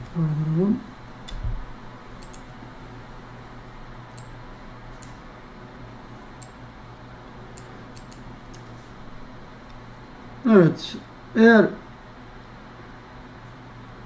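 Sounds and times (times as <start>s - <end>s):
low electrical hum: 0.0s - 14.0s
faint computer mouse clicks: 2.2s - 2.4s.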